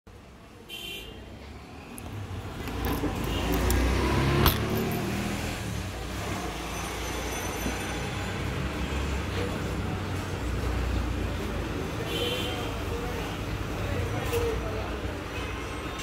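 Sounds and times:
motor vehicle rumble: 1.3s - 15.3s
keys jangling: 4.4s - 5.2s.

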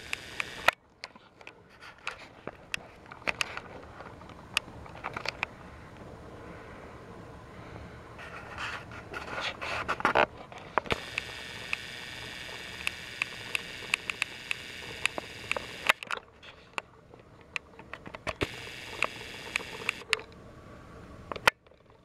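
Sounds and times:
small motor whirring: 0.0s - 0.8s, 10.9s - 16.0s, 18.4s - 20.1s
plastic toy trains rustling: 0.0s - 5.5s.

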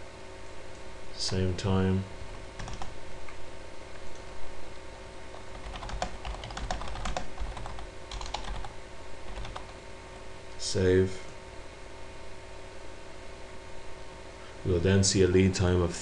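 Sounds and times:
typing on computer keyboard: 2.6s - 2.9s, 5.5s - 8.7s, 9.3s - 9.7s.

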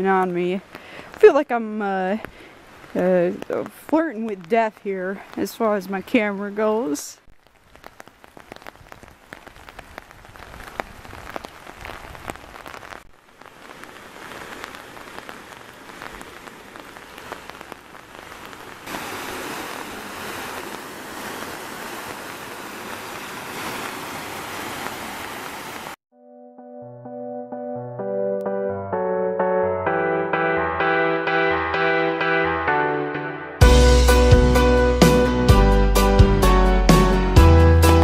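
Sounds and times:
raindrops ticking on umbrella: 0.0s - 26.0s
steady hiss of rain: 0.0s - 26.0s.

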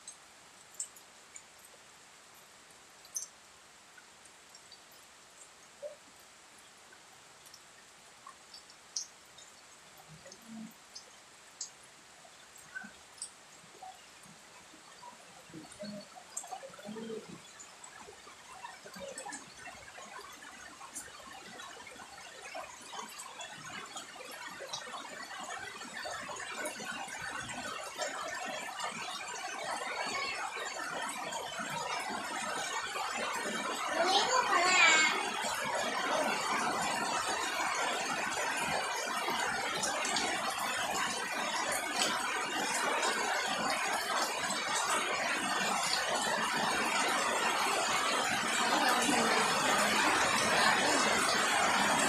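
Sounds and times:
faint drips: 0.0s - 52.0s
rain on foliage: 0.0s - 52.0s.

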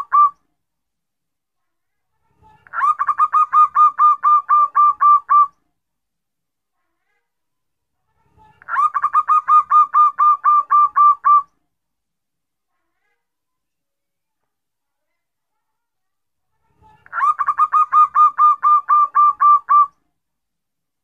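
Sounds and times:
dove rapid staccato cooing: 2.7s - 5.5s, 8.7s - 11.4s, 17.1s - 19.9s.

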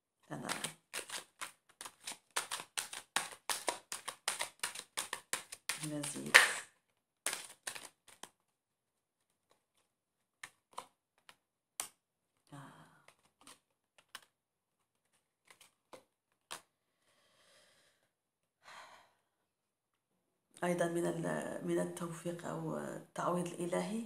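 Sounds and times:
cards clicking and tapping: 0.4s - 6.6s, 7.2s - 8.4s, 9.4s - 12.0s, 13.0s - 16.7s
cards sliding rustles: 0.4s - 6.6s, 7.3s - 8.4s, 9.2s - 11.9s, 13.1s - 16.7s.

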